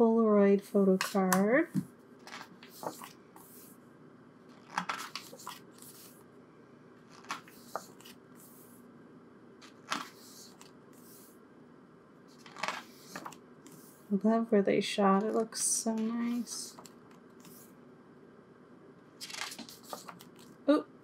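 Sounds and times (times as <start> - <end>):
book pages turning: 2.2 - 3.7, 4.5 - 6.2, 7.0 - 8.7, 9.6 - 11.3, 12.3 - 14.0, 16.0 - 17.7, 19.2 - 20.6.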